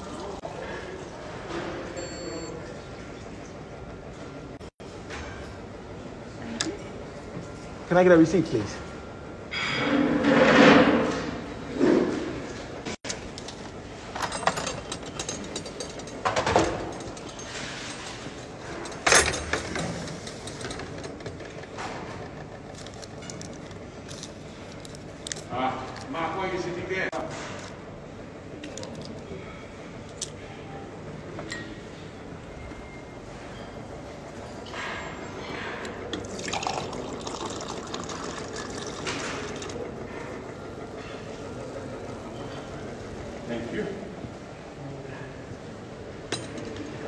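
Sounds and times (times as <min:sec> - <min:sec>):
steady mechanical hum: 0:00.0 - 0:47.0
juice pouring into a glass: 0:36.2 - 0:39.8.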